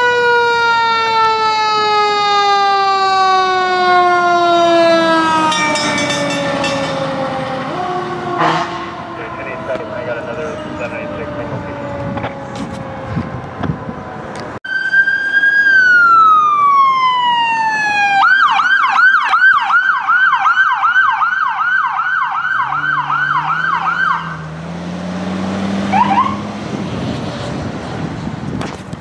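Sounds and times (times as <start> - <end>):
emergency vehicle siren: 0.0 - 28.2
heavy vehicle engine accelerating: 3.8 - 18.0, 22.5 - 29.0.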